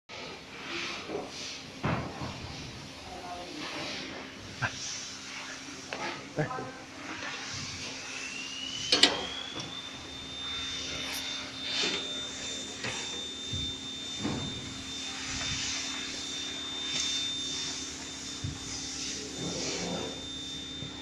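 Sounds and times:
electric motor whining: 0:07.6 - 0:21.0.

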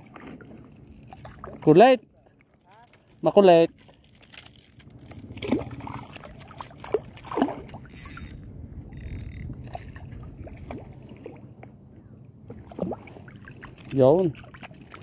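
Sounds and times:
seawater sloshing around legs: 0:00.0 - 0:08.3, 0:12.4 - 0:15.0
small splashes of a fish: 0:05.3 - 0:08.0, 0:12.5 - 0:15.0.

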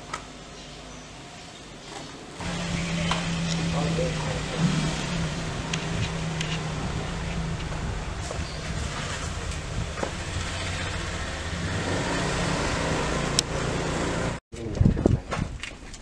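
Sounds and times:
vehicle engine humming: 0:02.4 - 0:14.4.

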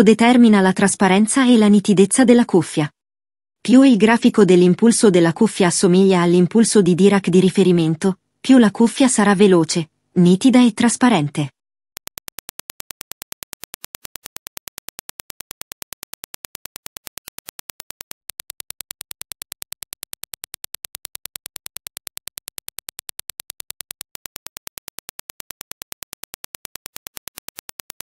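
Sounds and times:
rapid sharp test clicks: 0:12.0 - 0:28.0.

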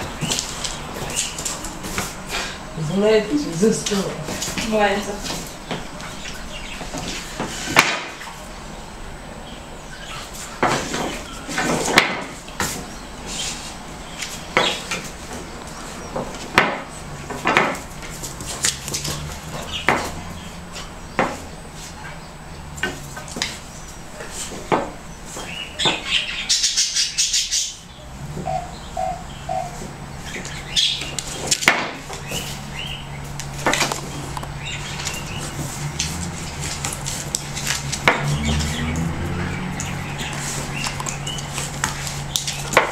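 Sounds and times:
broom scraping and knocking on floor: 0:06.8 - 0:08.2, 0:35.4 - 0:40.8.

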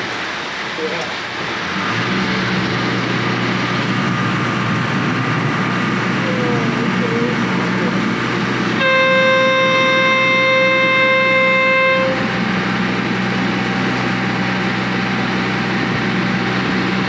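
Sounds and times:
boat engine running: 0:00.0 - 0:17.0
water rushing along hull: 0:00.0 - 0:17.0
boat horn blast: 0:06.3 - 0:17.0.

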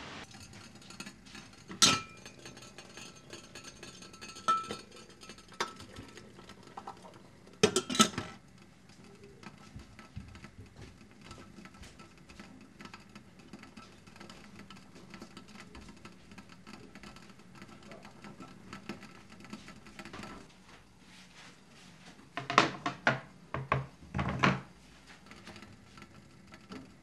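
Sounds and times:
metal infuser clinking on glass teapot: 0:00.2 - 0:10.6.

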